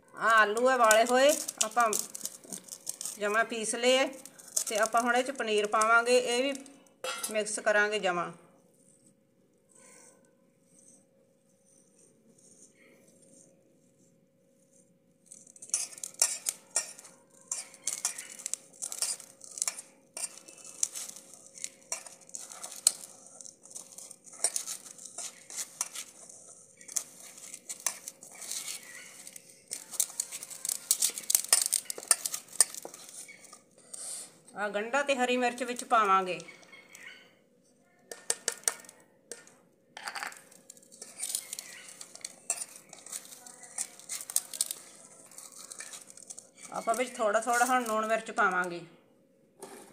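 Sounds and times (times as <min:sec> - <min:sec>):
fingers scraping steel bowl: 0:14.7 - 0:34.3.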